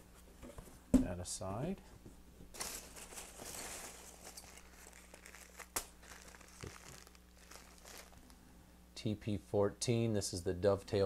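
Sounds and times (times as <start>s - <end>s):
packing peanuts rustling: 2.5s - 8.4s
plastic wrapping crinkling: 2.5s - 8.4s.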